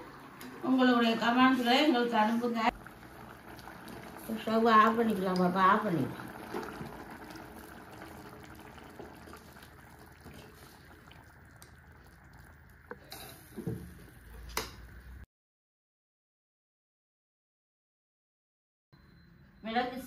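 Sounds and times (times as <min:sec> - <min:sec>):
pot bubbling on stove: 0:00.0 - 0:15.2.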